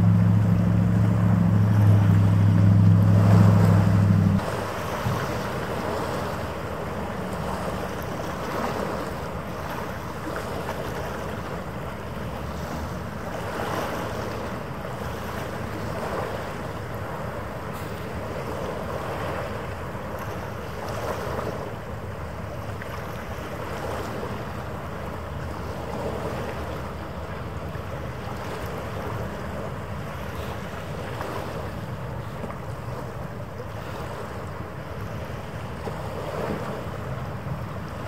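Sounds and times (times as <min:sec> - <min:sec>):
faint steady hum: 0:00.0 - 0:04.6
harbour water: 0:00.0 - 0:38.0.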